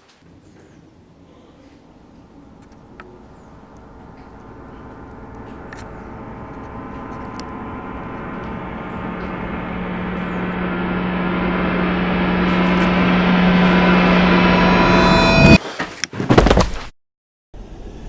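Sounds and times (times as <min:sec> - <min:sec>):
droning horror soundtrack: 0:00.9 - 0:15.6
strong low tone: 0:01.8 - 0:15.6.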